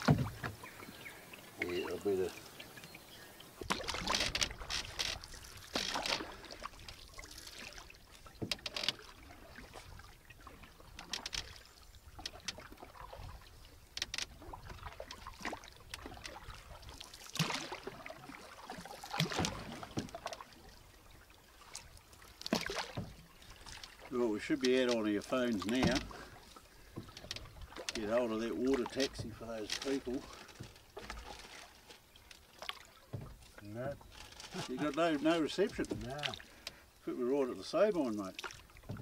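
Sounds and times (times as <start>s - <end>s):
sharp knocks: 0.0s - 0.6s
paddle splashing in water: 0.0s - 39.0s.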